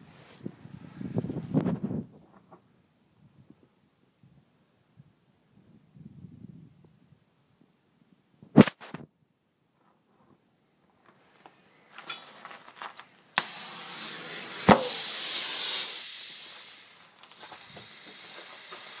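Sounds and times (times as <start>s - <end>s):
compressed air hissing from hose: 13.4s - 19.0s
sharp pop of tyre bead: 14.6s - 15.8s.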